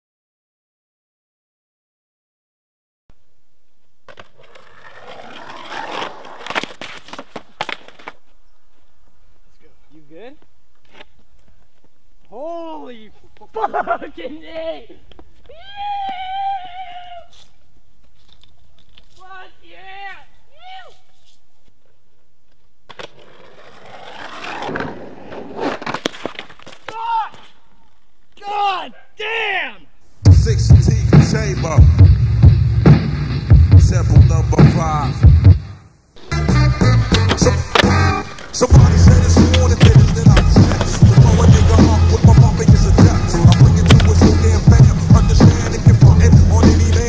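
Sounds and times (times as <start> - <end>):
skateboard wheels rolling on concrete: 3.6 - 28.7, 36.2 - 47.0
skateboard clacks and thuds: 37.1 - 46.0.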